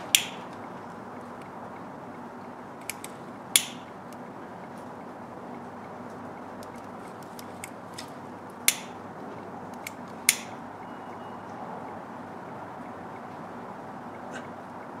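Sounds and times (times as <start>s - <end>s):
steady low hiss: 0.0s - 10.8s
sharp clicks of wire terminal: 0.1s - 0.6s, 2.8s - 4.2s, 6.6s - 9.1s, 9.7s - 10.6s.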